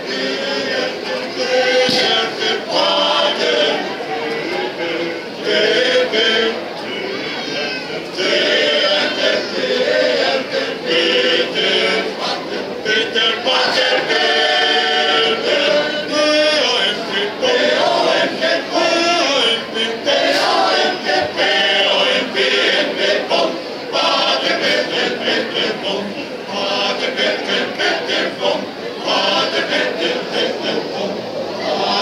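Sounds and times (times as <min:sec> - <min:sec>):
male choir singing a cappella: 0:00.0 - 0:32.0.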